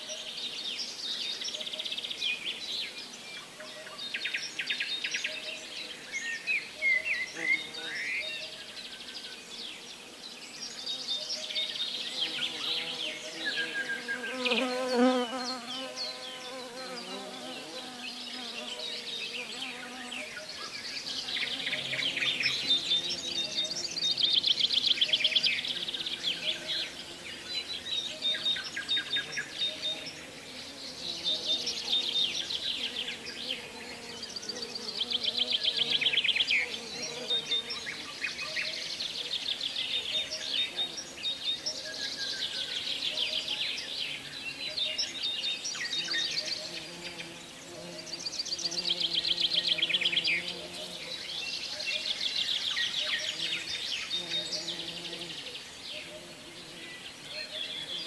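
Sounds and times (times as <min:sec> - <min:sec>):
birds chirping and trilling: 0:00.0 - 0:58.0
buzzing insect-like trill: 0:12.2 - 0:20.3, 0:46.0 - 0:51.0, 0:53.3 - 0:55.4.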